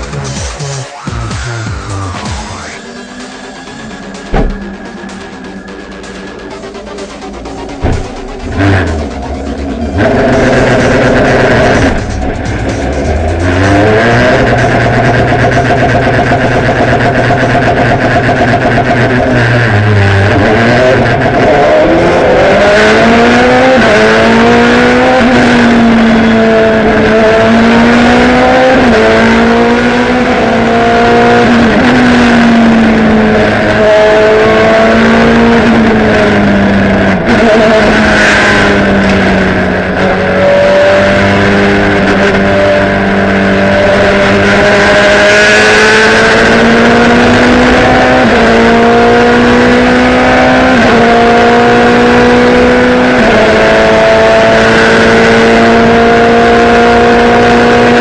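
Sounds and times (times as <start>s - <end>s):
race car engine revving: 1.4s - 58.0s.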